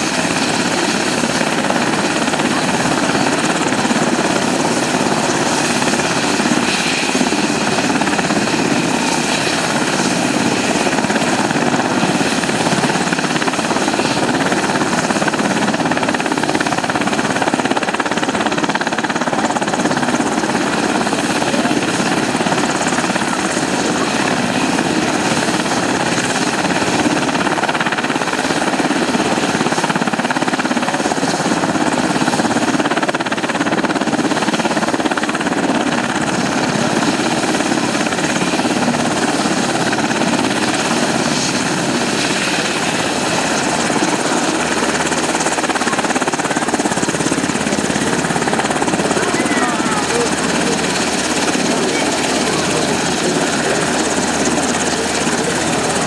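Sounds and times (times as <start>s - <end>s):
helicopter rotor noise: 0.0s - 56.0s
high turbine whine: 37.0s - 56.0s.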